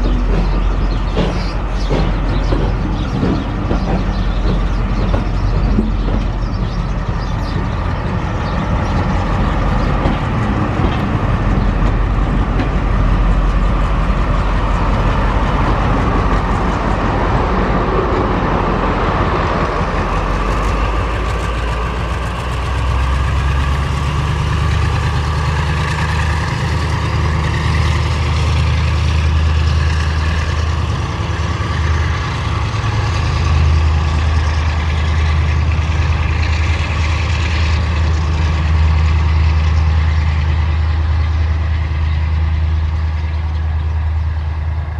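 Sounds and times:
deep diesel engine drone: 0.0s - 44.9s
train coaches rolling on rails: 0.0s - 44.9s.

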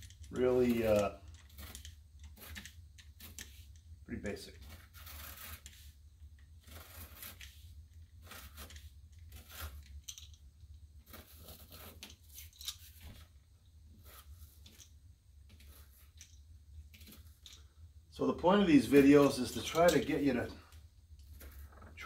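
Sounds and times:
pounce wheel perforating paper: 0.0s - 3.8s, 4.5s - 10.0s, 11.0s - 13.2s, 15.5s - 17.5s.

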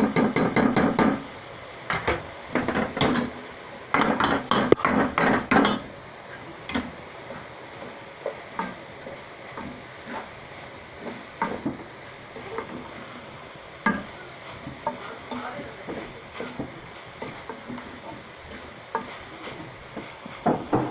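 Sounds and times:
colander clattering against pot: 1.9s - 3.3s
spoon stirring rice in pot: 3.9s - 5.9s, 6.7s - 20.9s
spoon scraping pot side: 9.6s - 10.4s, 13.8s - 20.9s.

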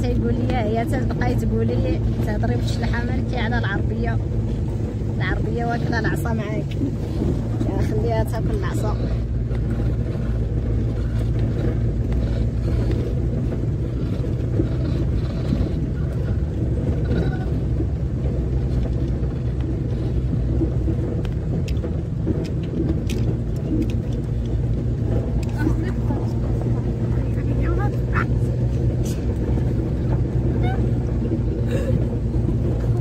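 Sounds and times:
road noise on dirt track: 0.0s - 33.0s
vehicle engine running: 0.0s - 33.0s
light clicks and rattles: 6.6s - 33.0s.

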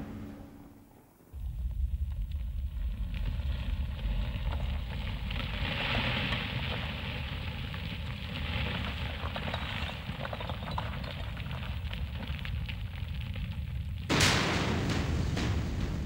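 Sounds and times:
low rumble: 0.0s - 5.4s
stone crackling: 1.6s - 15.9s.

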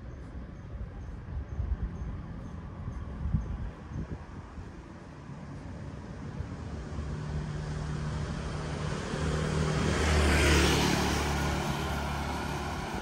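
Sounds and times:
car passing by: 5.5s - 13.0s.

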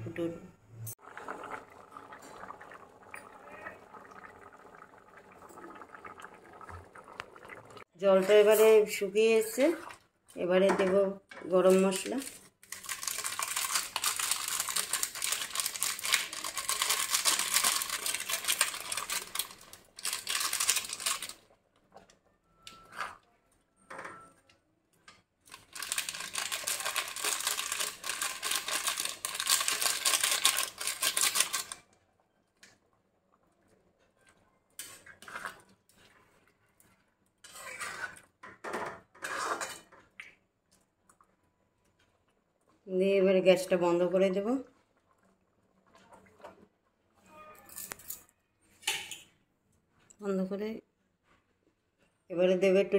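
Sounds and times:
foil sachet crinkling: 12.0s - 21.5s, 25.5s - 31.8s
steel spatula scraping metal pan: 37.4s - 38.2s, 39.1s - 39.9s.

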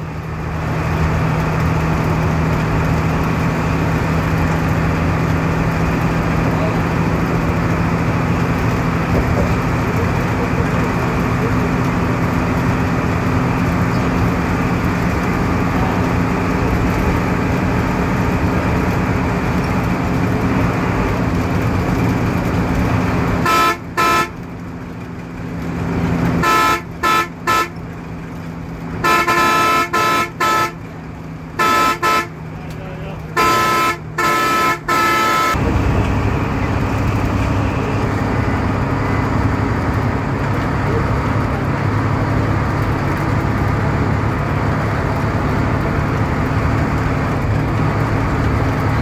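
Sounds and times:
vehicle engine and road noise: 0.0s - 49.0s
car horn tooting: 23.4s - 24.5s, 26.3s - 27.9s, 29.0s - 30.9s, 31.6s - 32.5s, 33.3s - 35.7s.

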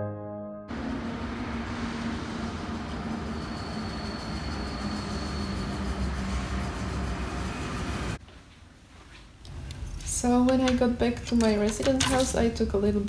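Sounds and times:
train rumble and hum: 0.7s - 8.2s.

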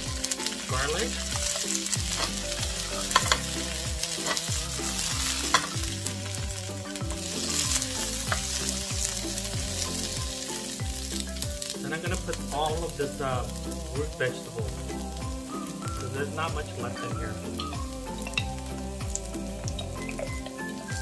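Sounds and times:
vegetables sizzling in oil: 0.0s - 21.0s
wooden spoon knocking on pan: 1.4s - 6.0s.

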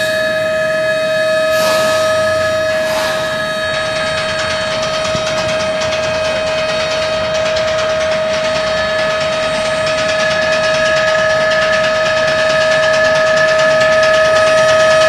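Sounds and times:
high tone: 1.4s - 4.2s.

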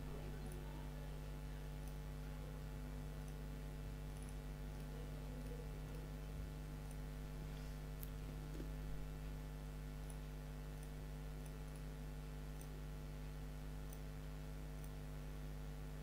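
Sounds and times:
low electrical hum: 0.0s - 16.0s
computer mouse clicks: 4.1s - 6.2s, 10.0s - 12.8s, 13.8s - 15.1s.

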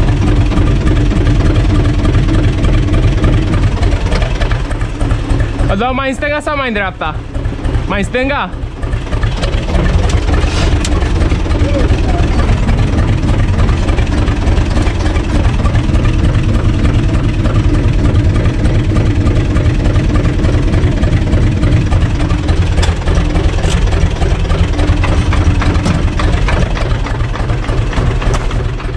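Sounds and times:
tractor diesel engine running: 0.0s - 28.9s.

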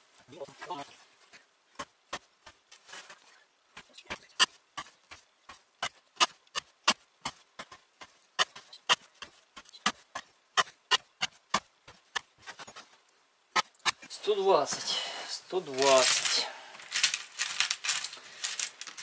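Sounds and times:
axe cutting into wood knocks: 13.5s - 14.1s.

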